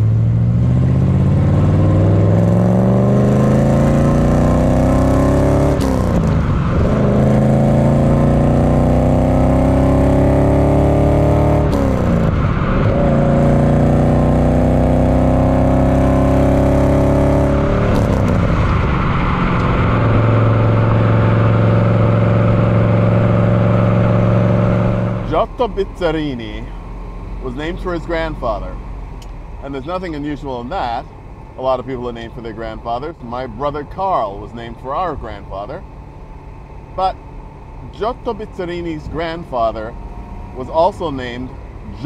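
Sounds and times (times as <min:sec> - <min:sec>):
car engine accelerating through gears: 0:00.0 - 0:25.4.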